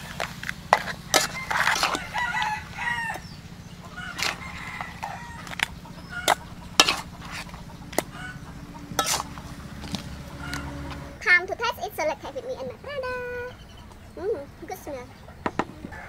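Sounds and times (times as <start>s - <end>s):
utensil clinking on metal plate: 0.0s - 2.1s, 4.1s - 8.2s, 8.9s - 10.7s
rooster crowing: 0.8s - 11.2s, 15.8s - 16.0s.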